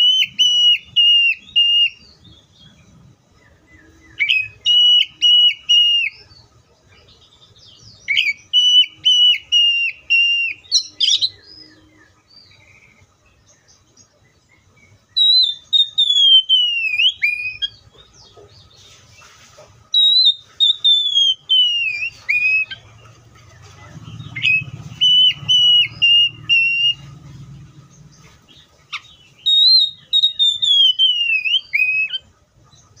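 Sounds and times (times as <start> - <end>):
bird singing whistled phrases: 0.0 - 6.3, 7.6 - 13.0, 15.1 - 17.8, 19.9 - 22.9, 24.2 - 27.2, 28.9 - 32.3.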